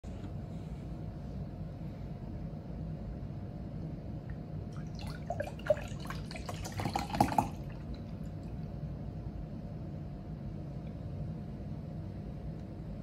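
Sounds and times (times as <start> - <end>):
milk pouring into a glass: 4.8 - 8.3.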